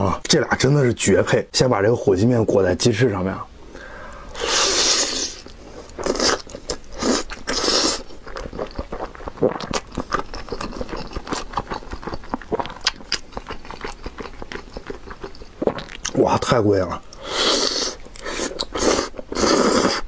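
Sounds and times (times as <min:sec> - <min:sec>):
slurping noodles: 0:04.3 - 0:11.1, 0:17.2 - 0:20.0
wet clicky chewing: 0:08.1 - 0:16.2.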